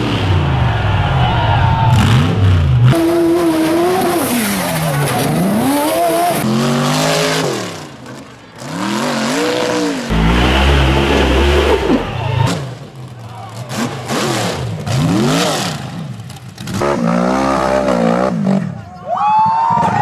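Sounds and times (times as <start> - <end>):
engines revving hard: 1.9 - 18.8
deep engine rumble: 10.1 - 13.2.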